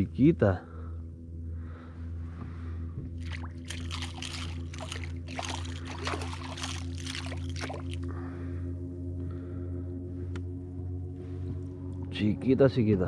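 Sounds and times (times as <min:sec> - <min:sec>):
steady low drone: 0:00.0 - 0:13.0
fish thrashing at water surface: 0:03.2 - 0:08.1
water splashing: 0:03.2 - 0:08.1.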